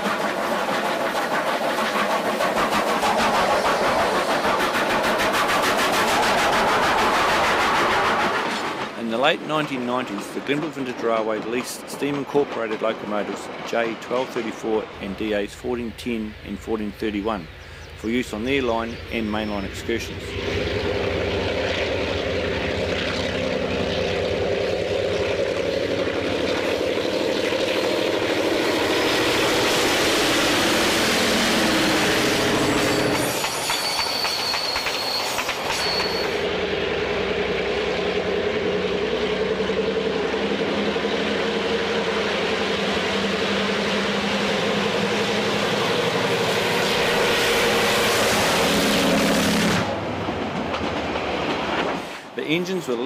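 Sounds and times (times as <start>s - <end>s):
wheels clattering on rails: 0.0s - 17.1s, 32.4s - 36.5s, 47.9s - 53.0s
diesel locomotive engine drone: 0.0s - 53.0s
high wheel squeal: 32.2s - 36.5s.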